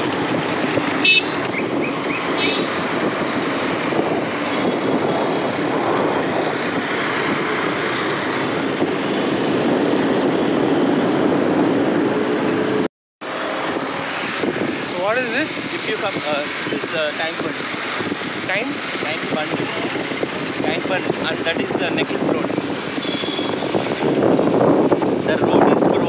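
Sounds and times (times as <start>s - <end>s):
road and traffic noise: 0.0s - 26.0s.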